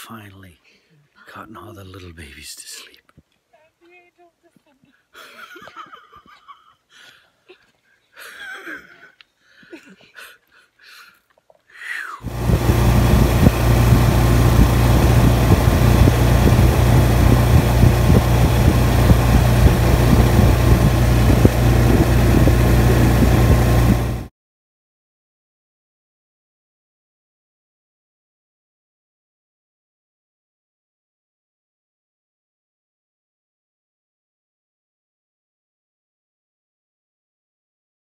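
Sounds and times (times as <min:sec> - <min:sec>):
boat motor running: 0:12.2 - 0:24.3
wind and water noise: 0:12.2 - 0:24.3.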